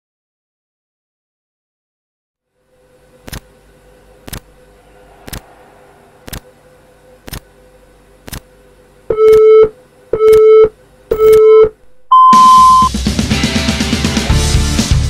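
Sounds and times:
longer higher beep: 9.1 - 12.9
short beeps: 9.1 - 12.9
music with a beat: 12.8 - 15.0.

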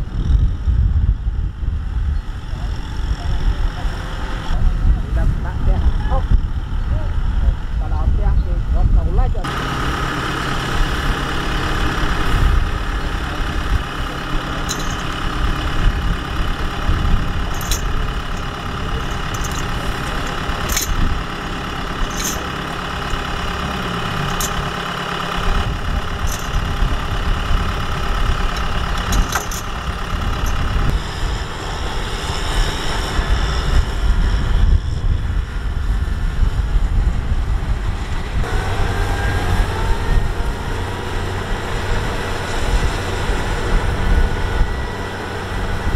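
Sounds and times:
tractor diesel engine running: 0.9 - 45.9
metallic chain clinks: 14.5 - 15.4, 17.5 - 24.9, 26.1 - 27.0, 28.5 - 30.8.

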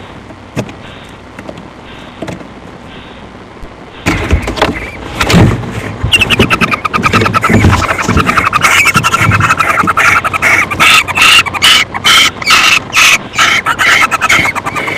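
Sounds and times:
owl chittering clicks: 6.1 - 14.9.

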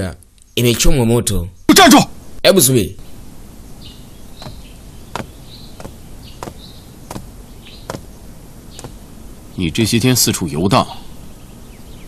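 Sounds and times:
sharp clicks: 8.8 - 9.0.

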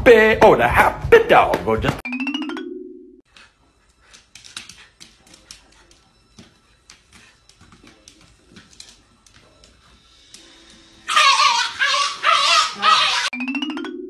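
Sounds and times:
claws clicking on hard floor: 4.0 - 10.0.

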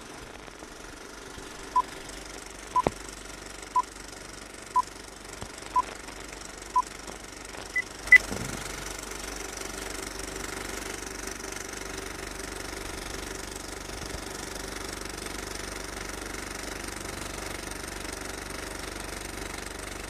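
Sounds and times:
low rumbling: 8.1 - 9.2.

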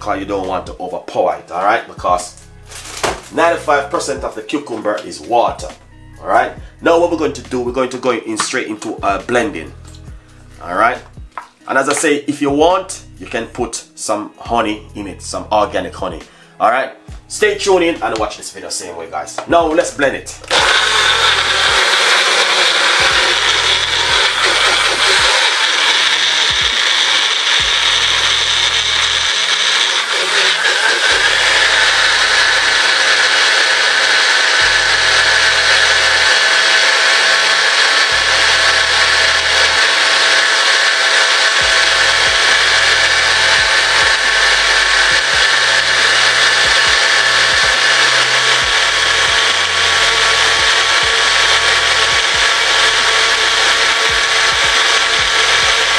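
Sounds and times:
electric blender running: 2.7 - 3.8, 20.4 - 55.9.

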